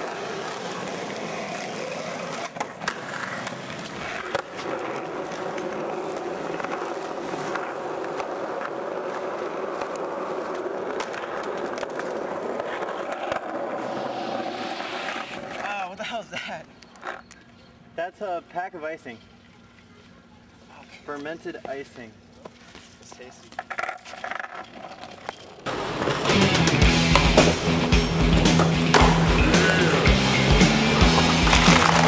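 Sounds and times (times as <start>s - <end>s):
skateboard clacks: 0.0s - 15.7s, 23.2s - 32.0s
skateboard wheels rolling on pavement: 0.0s - 17.6s, 19.3s - 32.0s.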